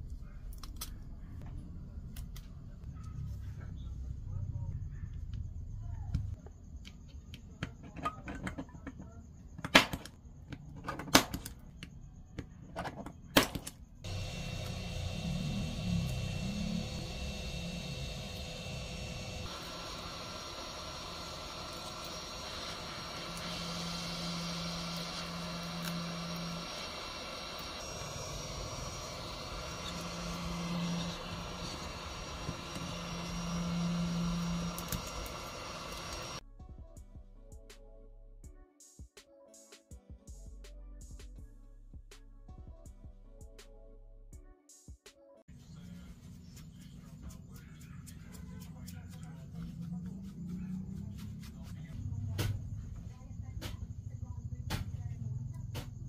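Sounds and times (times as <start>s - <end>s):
steady whirring hum: 14.0s - 36.4s.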